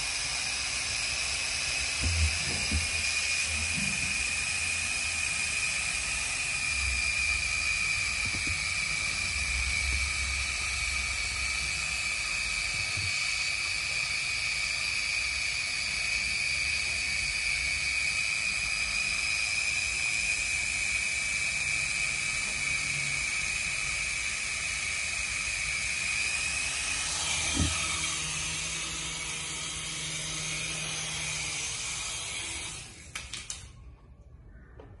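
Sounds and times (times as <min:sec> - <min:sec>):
toy helicopter motor whine: 0:00.0 - 0:33.8
knock: 0:02.0 - 0:03.0.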